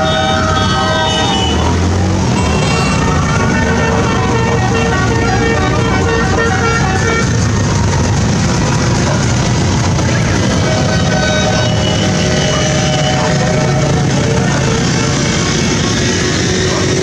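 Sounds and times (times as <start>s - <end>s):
siren-like wail: 0.0s - 1.7s, 2.4s - 7.4s, 10.1s - 14.7s
horns tooting: 0.0s - 17.0s
motorcycles and cars passing: 0.0s - 17.0s.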